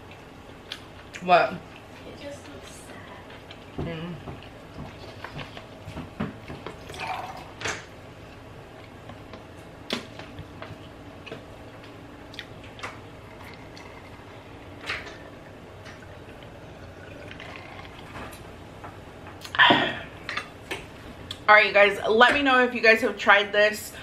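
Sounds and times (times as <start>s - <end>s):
wet chewing: 10.6s - 18.4s.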